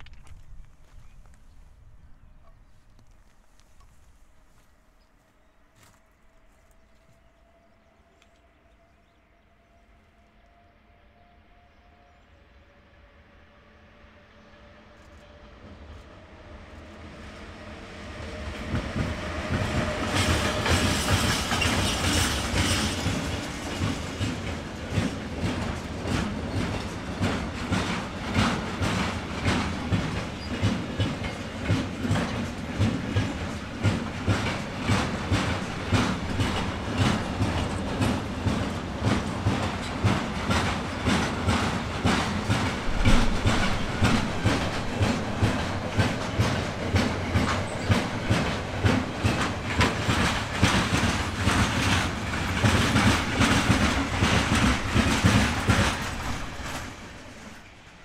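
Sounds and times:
train wheels clickety-clack: 14.6 - 58.0.

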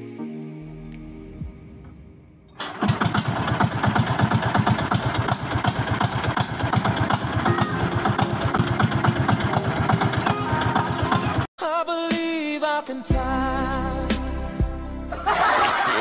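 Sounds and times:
boat engine running: 2.6 - 11.5.

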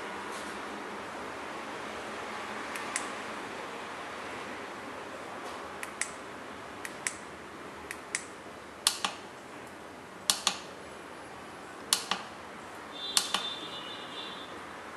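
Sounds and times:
remote button clicks: 13.1 - 13.6.

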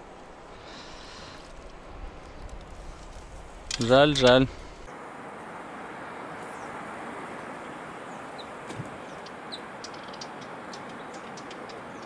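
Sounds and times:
water on shore: 0.0 - 12.0
wind: 0.0 - 12.0.

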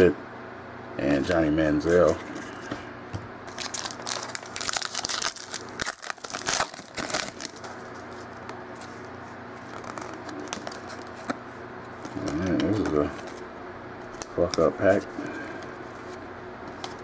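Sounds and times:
foil wrapper tearing and crinkling: 3.5 - 9.0, 9.6 - 11.3.

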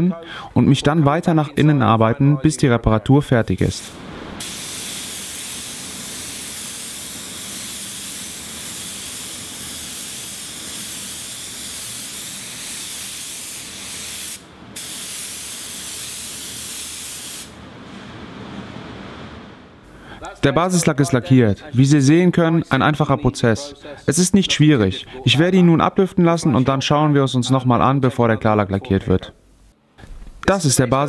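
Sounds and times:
paint spray gun hissing: 3.8 - 17.6.

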